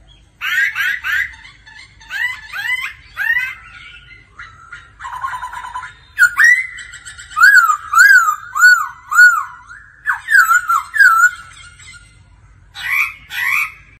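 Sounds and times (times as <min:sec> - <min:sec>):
bird singing whistled notes: 0:05.4 - 0:06.8, 0:07.4 - 0:11.5.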